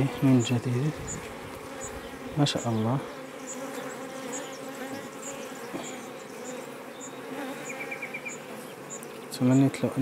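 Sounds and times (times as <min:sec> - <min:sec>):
honeybees buzzing: 0:00.0 - 0:10.0.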